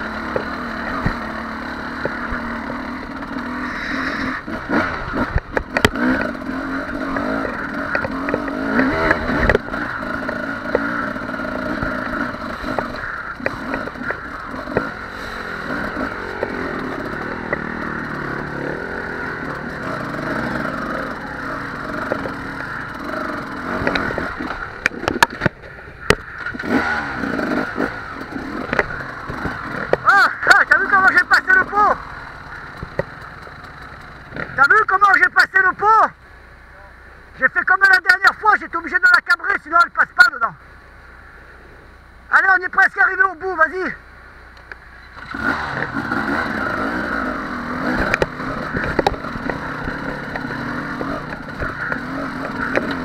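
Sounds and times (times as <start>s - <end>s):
two-stroke motorcycle engine revving: 0.0s - 35.9s, 44.6s - 53.0s
motorcycle striking stones: 0.2s - 1.2s, 4.5s - 30.1s, 32.4s - 34.6s, 45.1s - 53.0s.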